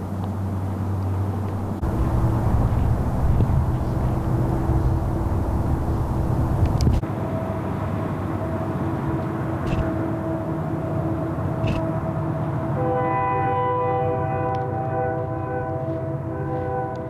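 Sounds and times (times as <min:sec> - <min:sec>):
wind rumbling on microphone: 0:00.0 - 0:12.8
steady low hum: 0:00.0 - 0:17.0.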